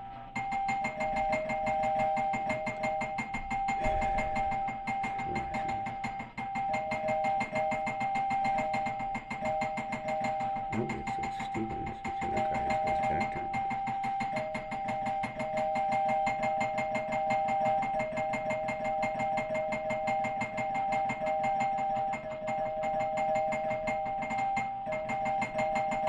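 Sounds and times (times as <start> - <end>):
doorbell ringing: 0.3 - 26.0.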